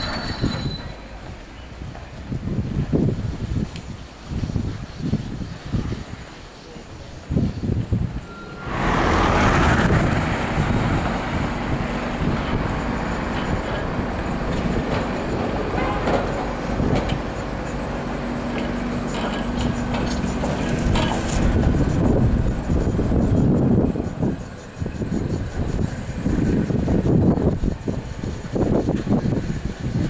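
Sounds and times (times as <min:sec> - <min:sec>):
tram clicks: 0:00.0 - 0:04.8, 0:07.8 - 0:30.0
tram wheels rumbling on rails: 0:00.0 - 0:30.0
tram motor hum: 0:07.8 - 0:30.0
high-pitched wheel noise: 0:08.2 - 0:30.0.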